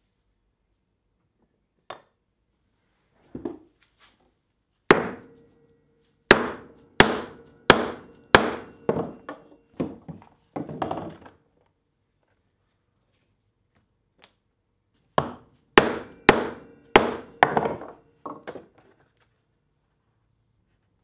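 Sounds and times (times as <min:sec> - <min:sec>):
mallet striking steel cutter: 0:04.9 - 0:09.5, 0:15.3 - 0:18.0
faint metallic ringing: 0:05.1 - 0:10.6, 0:15.6 - 0:18.6.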